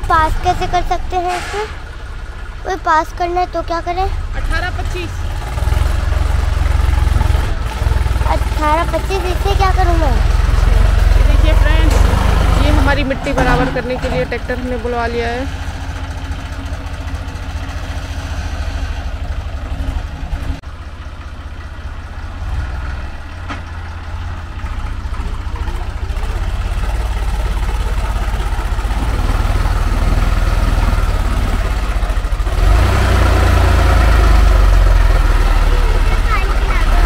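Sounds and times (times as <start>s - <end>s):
tractor engine running: 0.0s - 37.0s.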